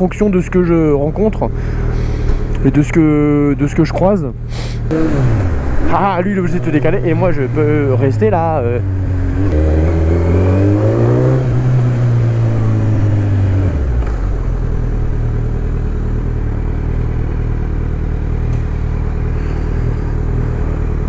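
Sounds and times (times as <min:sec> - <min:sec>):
motorcycle engine revving: 0:04.8 - 0:21.0.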